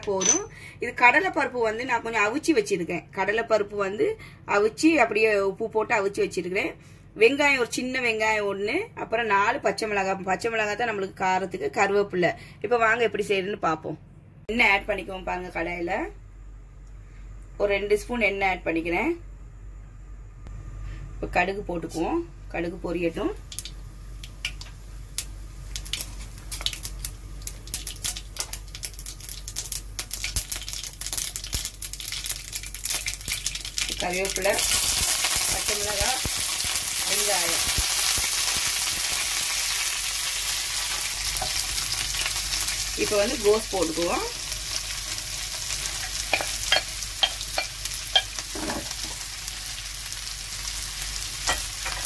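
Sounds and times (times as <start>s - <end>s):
mustard seeds popping in hot oil: 23.4s - 52.0s.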